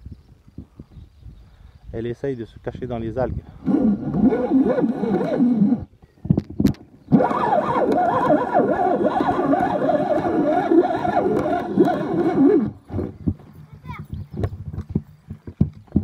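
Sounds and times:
fishing reel drag buzzing: 3.6 - 5.9, 7.1 - 12.9
reel clicks: 6.7 - 12.8.

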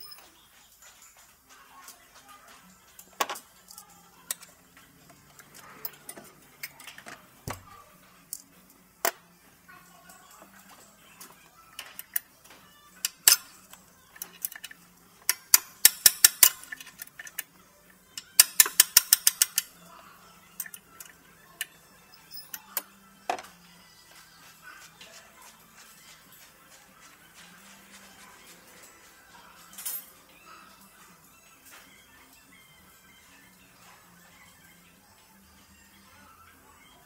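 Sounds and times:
tools tapping on metal: 14.2 - 17.4, 18.2 - 19.8
ratchet wrench clicking: 14.3 - 17.4, 18.3 - 19.7.

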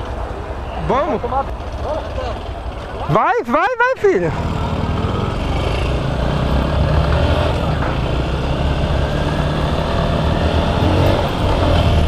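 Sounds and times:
motorcycle engine running: 4.2 - 12.0.

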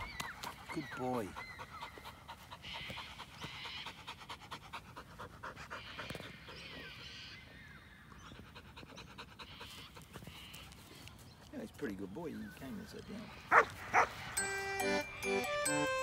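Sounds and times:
dog panting: 0.4 - 7.0, 8.1 - 10.8.

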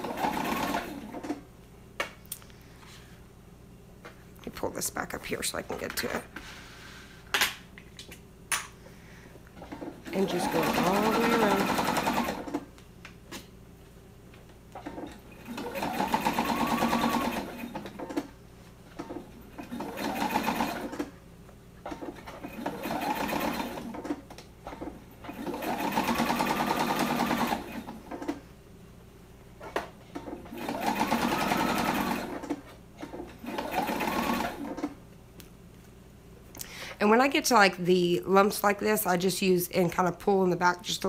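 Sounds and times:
sewing machine stitching: 0.0 - 1.4, 9.6 - 12.7, 14.8 - 18.3, 19.0 - 21.1, 21.8 - 28.4, 29.7 - 35.0.

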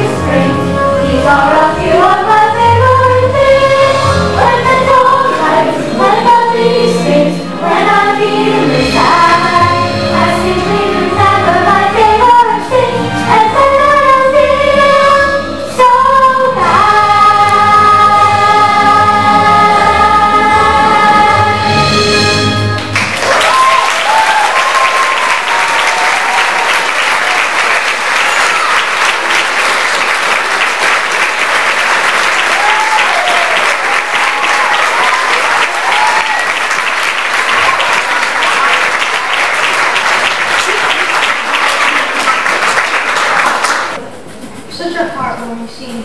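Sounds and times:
audience applauding: 22.7 - 44.0
shouts and whoops of cheering: 23.1 - 27.5, 28.2 - 29.0, 32.5 - 36.7.

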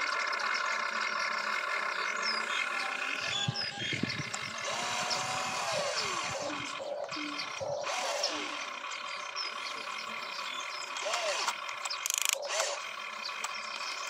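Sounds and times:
electric motors whining: 2.2 - 14.0.

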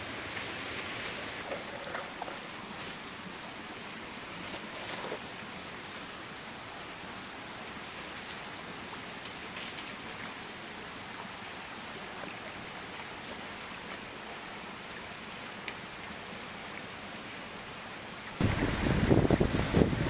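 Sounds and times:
wind buffeting microphone: 18.4 - 20.0.

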